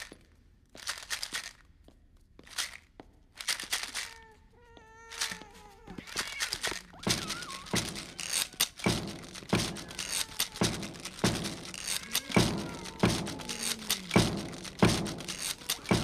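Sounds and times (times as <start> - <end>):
short wavering cry: 4.9 - 16.0
heavy stomping knocks: 7.0 - 16.0.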